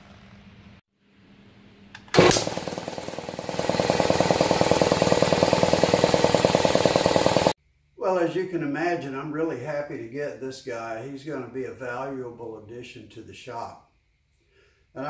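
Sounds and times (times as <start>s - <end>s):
pressure switch jolt: 2.0s - 2.7s
air compressor running: 2.1s - 7.6s.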